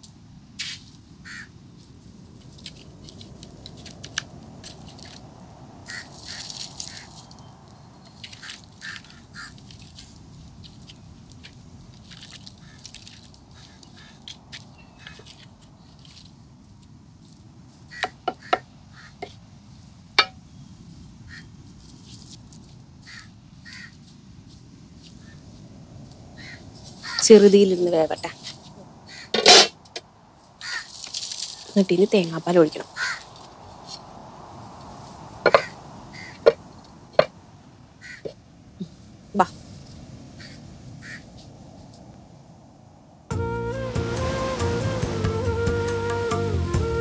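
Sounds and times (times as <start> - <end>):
wooden spoon scraping metal pan: 29.4 - 29.7.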